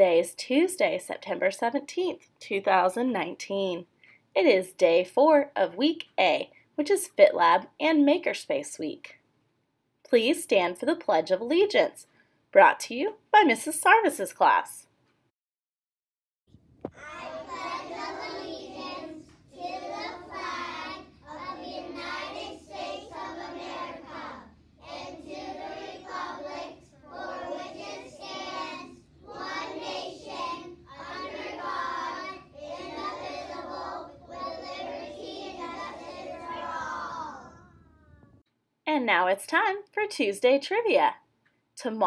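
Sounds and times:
children reciting in unison: 0:17.0 - 0:38.0.

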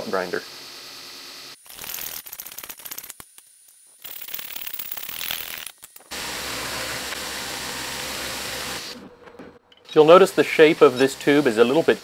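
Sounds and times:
belt grinder grinding steel: 0:03.9 - 0:09.0, 0:10.0 - 0:12.0.

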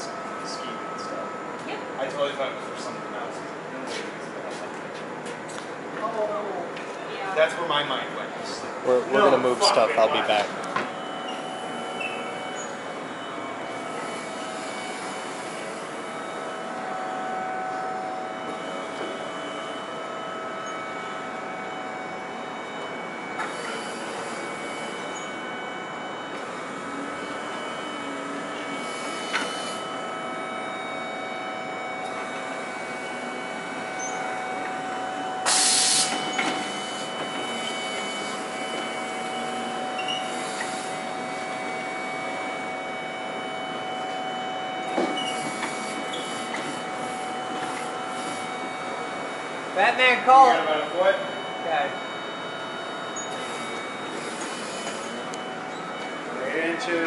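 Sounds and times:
electric forklift humming and whining: 0:00.0 - 0:57.0.

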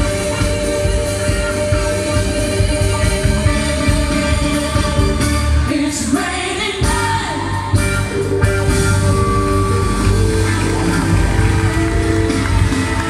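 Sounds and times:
disco song with singing: 0:00.0 - 0:13.0.

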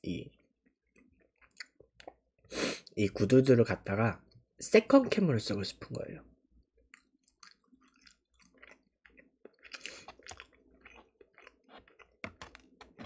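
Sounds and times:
faint chewing with mouth clicks: 0:00.4 - 0:03.0, 0:06.8 - 0:13.0.

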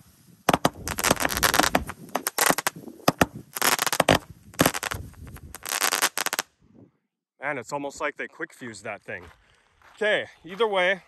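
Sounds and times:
firework bangs and crackling: 0:00.0 - 0:06.5.

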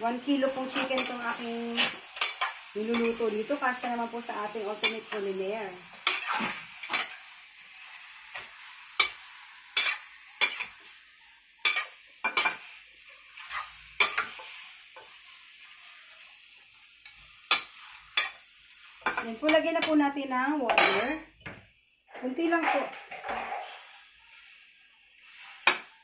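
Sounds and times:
meat sizzling: 0:00.0 - 0:21.0, 0:23.4 - 0:26.0
metal spoon scraping pan: 0:00.3 - 0:05.4, 0:06.0 - 0:07.2, 0:08.3 - 0:10.9, 0:11.6 - 0:15.1, 0:20.7 - 0:21.2, 0:25.2 - 0:26.0.

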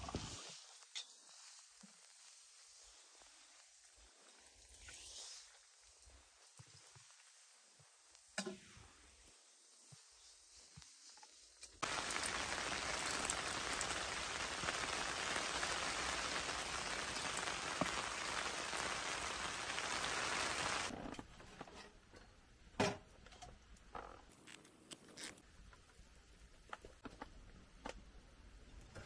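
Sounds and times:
heavy rain falling: 0:11.8 - 0:20.9.

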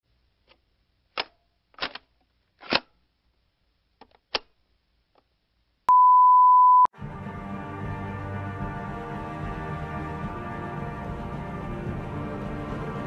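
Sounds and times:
steady test tone beep: 0:05.9 - 0:06.9.

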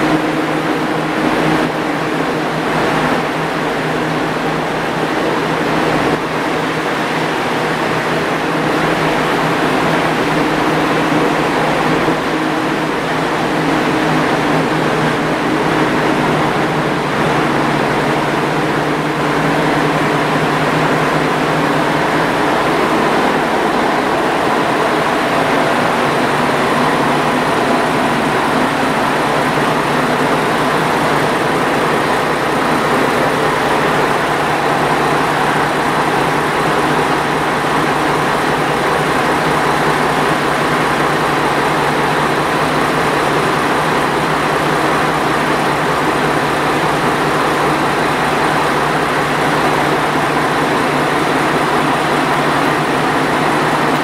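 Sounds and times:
diesel railcar engine idling: 0:00.0 - 0:54.0.

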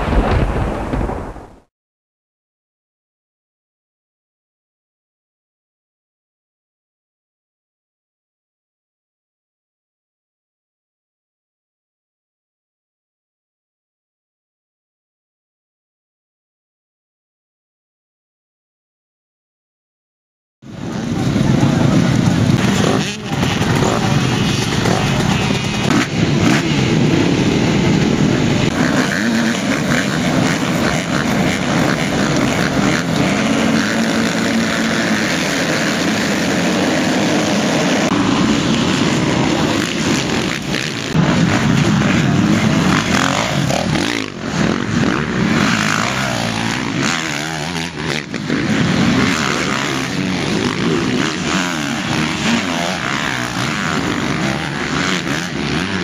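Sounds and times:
motocross bike engines revving: 0:20.7 - 0:56.0.

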